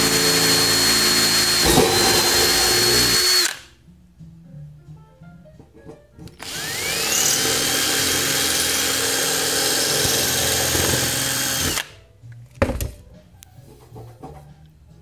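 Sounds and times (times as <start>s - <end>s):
electric drill cutting metal: 0.0s - 3.7s, 6.4s - 11.9s.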